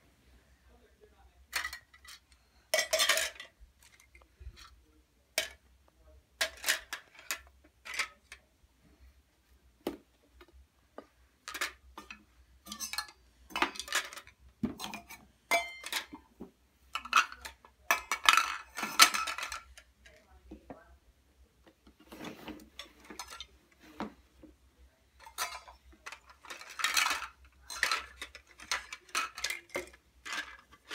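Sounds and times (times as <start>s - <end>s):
toy dishes clattering: 1.5s - 4.5s, 5.4s - 5.7s, 6.4s - 8.4s, 11.4s - 16.3s, 16.9s - 20.2s, 22.7s - 23.6s, 25.2s - 30.9s.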